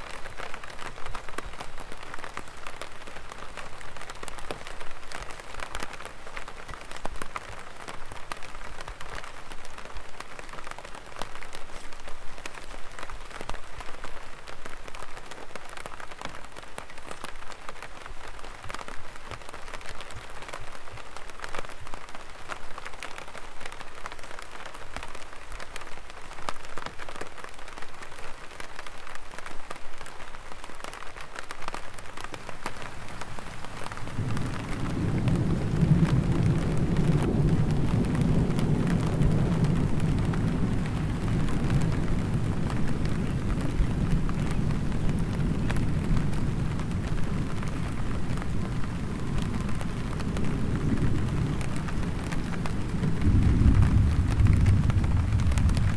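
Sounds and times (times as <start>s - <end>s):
light rain on an umbrella: 0.0s - 55.9s
low rumble of thunder: 33.0s - 55.9s.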